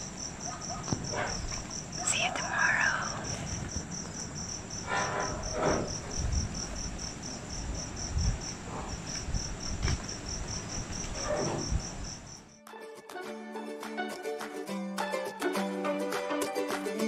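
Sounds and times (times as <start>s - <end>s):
cricket chirping: 0.0s - 12.6s.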